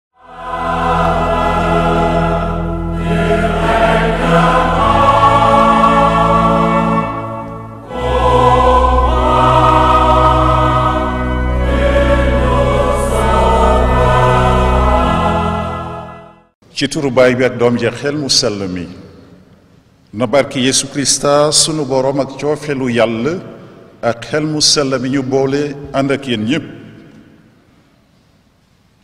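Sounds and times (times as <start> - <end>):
choir singing sacred music: 0.1 - 16.6.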